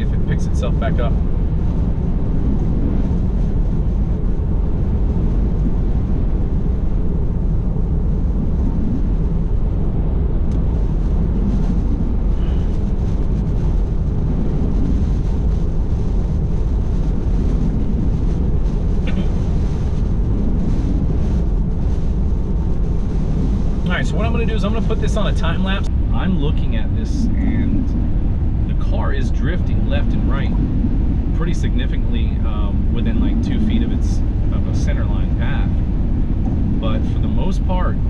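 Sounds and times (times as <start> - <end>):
road and wind noise in car cabin: 0.0 - 38.0
rain on car body: 10.5 - 25.9.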